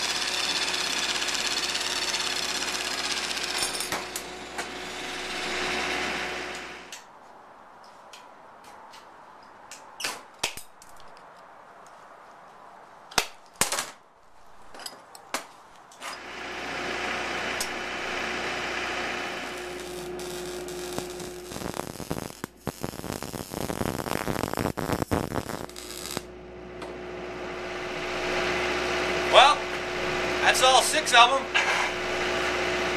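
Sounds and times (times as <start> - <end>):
arc welder crackling: 0.0 - 7.0, 16.2 - 32.9
steady hum: 16.2 - 32.9.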